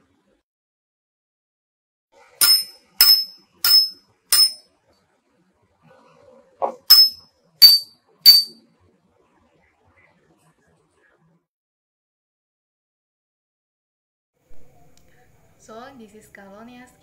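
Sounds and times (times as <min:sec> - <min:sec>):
small bell-like chime strikes: 0:02.4 - 0:04.6, 0:06.9 - 0:08.6.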